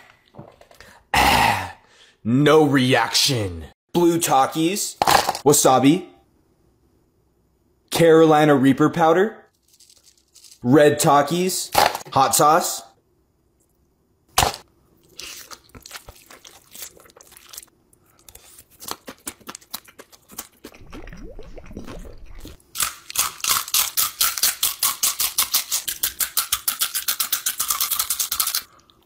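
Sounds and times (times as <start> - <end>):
crunching tortilla chips: 9.6 - 10.6, 14.4 - 20.8, 22.7 - 28.8
slurping and chewing noodles: 15.0 - 29.0.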